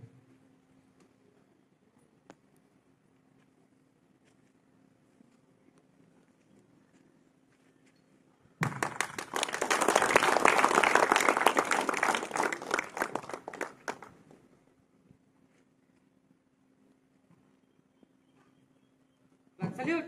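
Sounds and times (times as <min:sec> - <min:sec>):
group of people applauding: 0:08.6 - 0:14.2.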